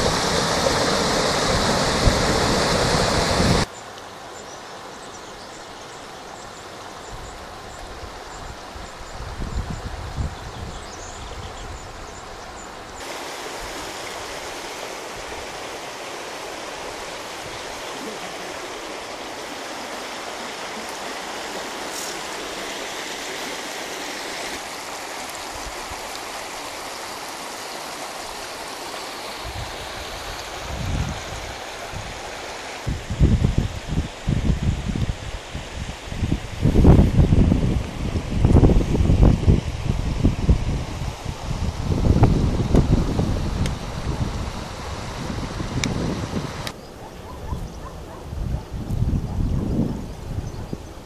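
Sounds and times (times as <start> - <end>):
stream rushing over rocks: 0.0 - 3.7, 12.9 - 46.8.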